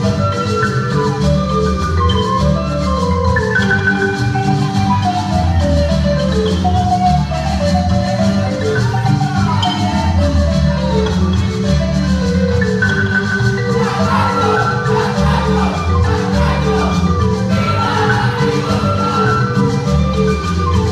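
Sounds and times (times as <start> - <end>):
marimba music: 0.0 - 20.9
low bass line: 13.7 - 20.7.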